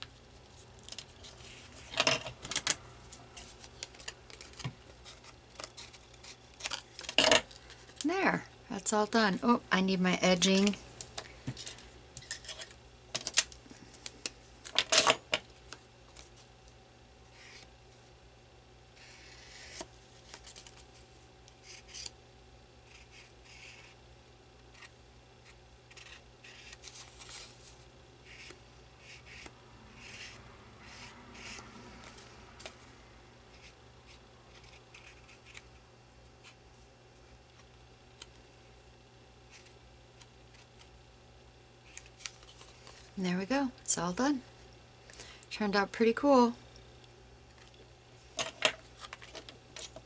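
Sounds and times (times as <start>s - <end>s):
paper card rustling: 3.1s - 8.0s, 19.0s - 21.0s, 25.9s - 30.4s
marker scratching on paper: 28.3s - 31.6s.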